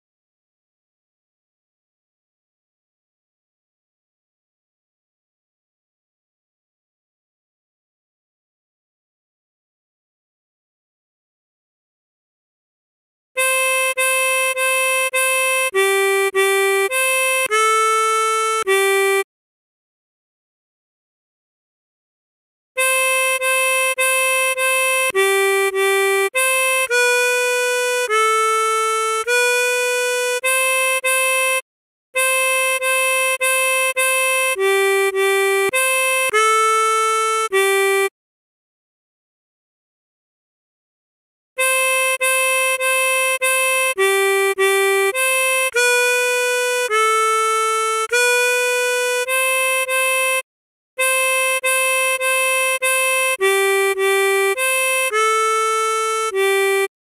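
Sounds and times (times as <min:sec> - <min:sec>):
harmonica playing slow melody: 0:13.4 - 0:19.3, 0:22.8 - 0:31.6, 0:32.2 - 0:38.1, 0:41.6 - 0:50.4, 0:51.0 - 0:57.0.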